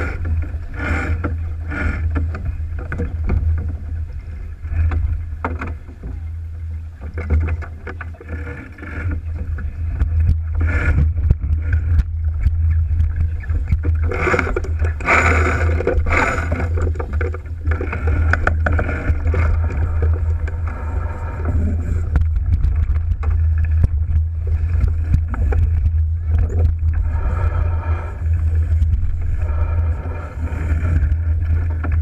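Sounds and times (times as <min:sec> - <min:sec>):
water splashing along hull: 0:00.0 - 0:32.0
wind buffeting microphone: 0:00.0 - 0:32.0
knocks and clicks: 0:04.8 - 0:06.3, 0:07.0 - 0:27.6.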